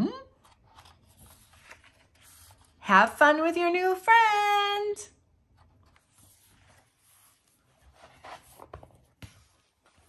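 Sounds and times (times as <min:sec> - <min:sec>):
book rubbing on wooden table: 0:06.1 - 0:09.5.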